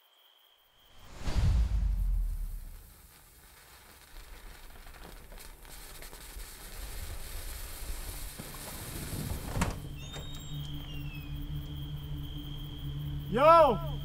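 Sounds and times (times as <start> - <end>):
deep low boom: 1.2 - 2.9.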